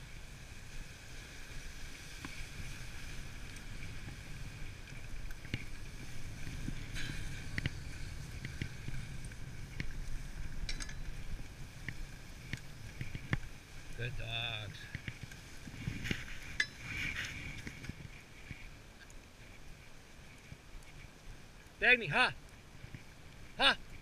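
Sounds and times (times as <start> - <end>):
sled runners hissing on snow: 0.0 - 14.8, 15.4 - 18.8
sled clicking: 0.0 - 24.0.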